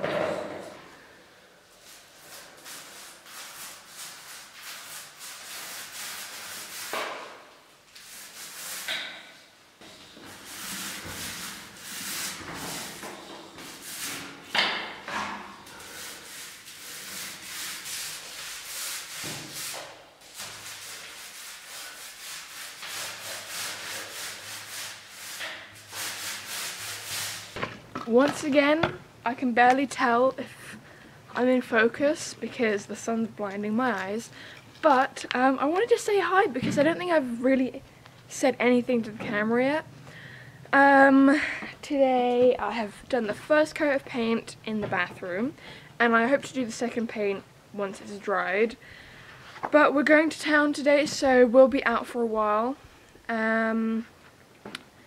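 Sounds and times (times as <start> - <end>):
paint roller swishing on wall: 1.7 - 28.8.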